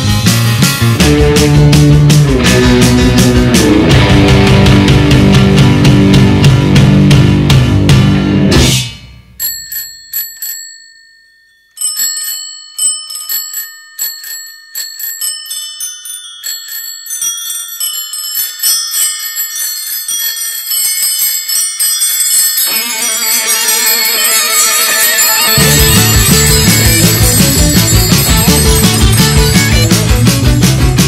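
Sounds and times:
rock band playing: 0.0 - 9.3, 22.7 - 31.0
bicycle bells ringing: 9.4 - 30.6.

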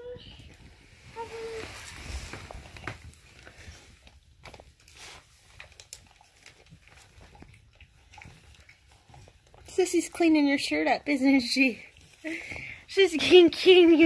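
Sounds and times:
dog licking: 5.1 - 12.2.

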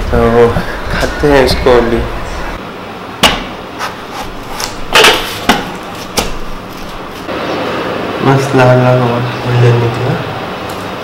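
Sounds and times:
watermelon knocking on steel plate: 3.2 - 3.6.

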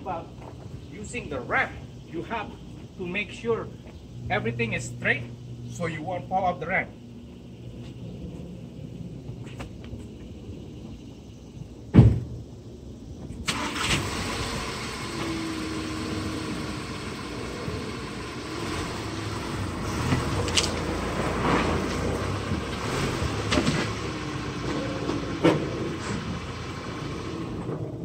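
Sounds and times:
car engine running: 14.0 - 28.0.

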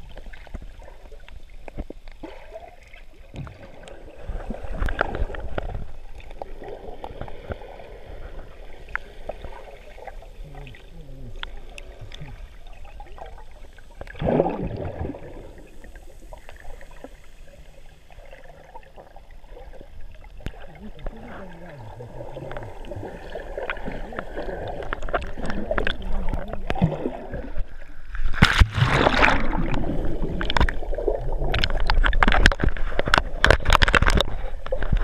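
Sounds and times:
faint clicks underwater: 0.0 - 2.4, 3.3 - 4.0, 4.7 - 7.6, 8.8 - 12.5, 20.1 - 35.0
muffled underwater sloshing: 0.0 - 35.0.

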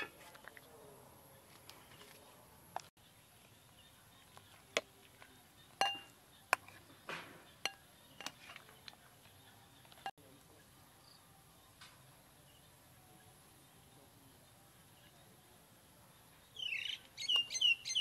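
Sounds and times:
metal ladle clinking on pot: 5.8 - 6.7.

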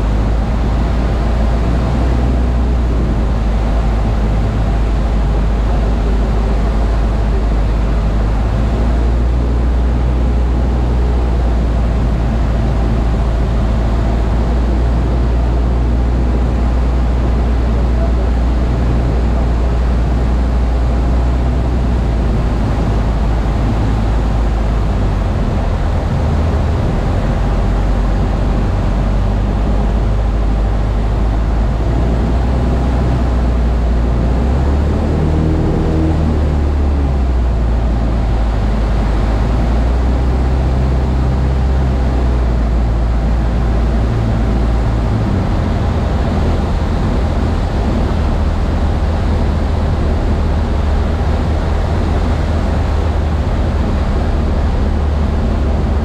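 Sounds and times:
aircraft engine droning: 0.0 - 56.0.

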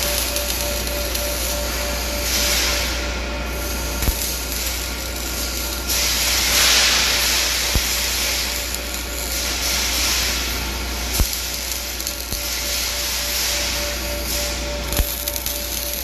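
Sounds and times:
low hum: 0.0 - 10.1
arc welding hiss: 0.0 - 16.0.

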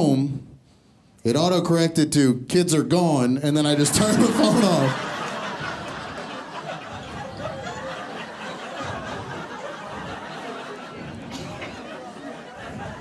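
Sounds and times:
audience laughing: 3.8 - 13.0.

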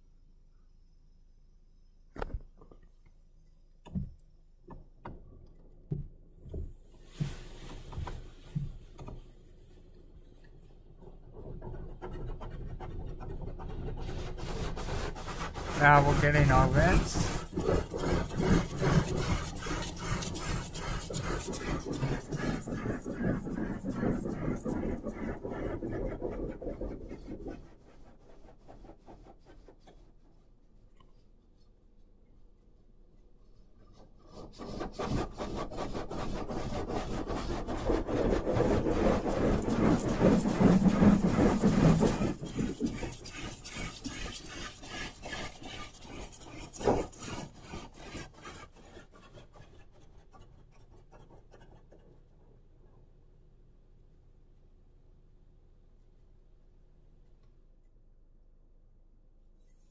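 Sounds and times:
car wash cloth slapping car body: 5.9 - 9.1
spray and scrubbing on glass: 6.9 - 8.8, 12.0 - 30.5, 38.0 - 49.3
phone rubbing against seat fabric: 14.9 - 27.6, 38.5 - 47.8.

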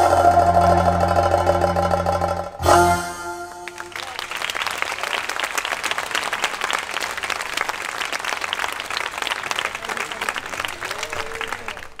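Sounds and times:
audience applauding: 3.5 - 12.0.

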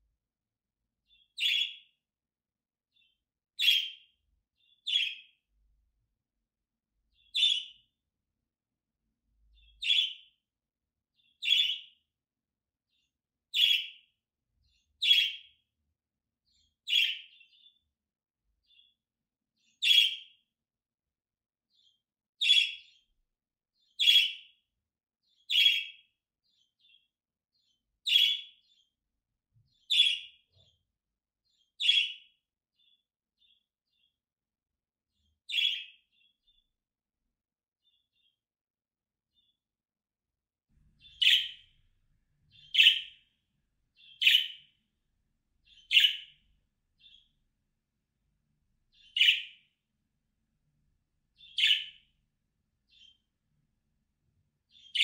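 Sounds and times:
budgerigar chirps: 41.1 - 41.6, 45.9 - 46.3, 49.1 - 49.6.

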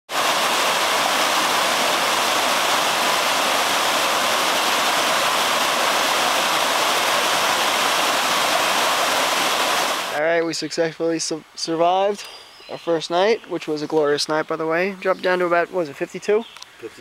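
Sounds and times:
stream rushing over rocks: 0.1 - 12.1.

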